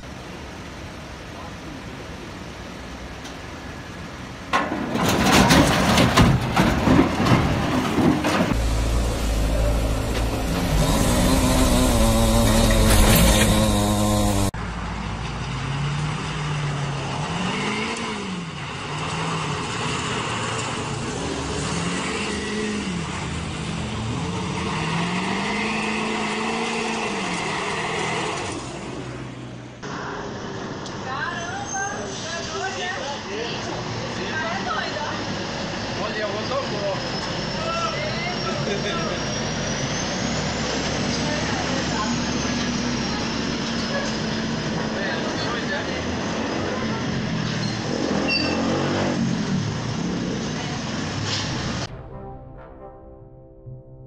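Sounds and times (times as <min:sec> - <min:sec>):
heavy rumbling and rushing: 0:04.5 - 0:14.6
pickup truck engine revving: 0:08.0 - 0:14.6
truck engine rising in pitch: 0:08.0 - 0:30.4, 0:35.2 - 0:51.9.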